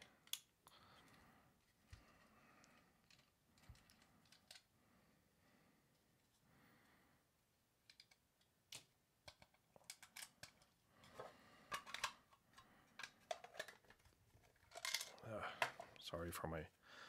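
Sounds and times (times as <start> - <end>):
hard plastic clicks and scrapes: 7.9 - 16.0.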